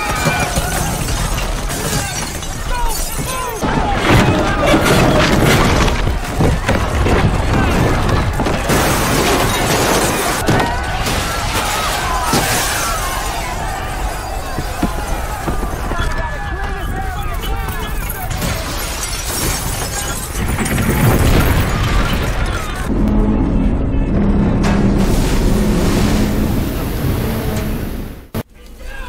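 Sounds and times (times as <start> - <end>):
crowd shouting and screaming: 0.0 - 5.4, 10.3 - 18.7
glass shattering: 0.0 - 13.8, 17.2 - 22.9
cracking: 0.0 - 22.9
deep rumbling: 20.4 - 28.4.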